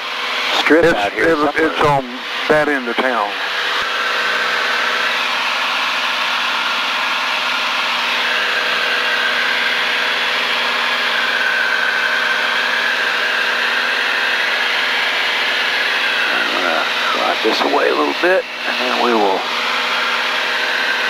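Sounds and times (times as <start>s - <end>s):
light aircraft engine droning: 0.0s - 21.0s.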